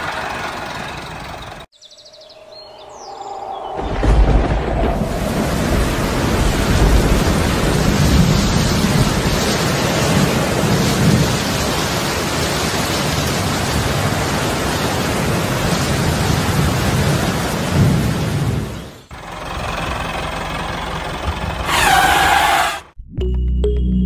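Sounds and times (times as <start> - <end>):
rolling thunder: 3.5 - 18.8
heavy rain: 4.0 - 22.8.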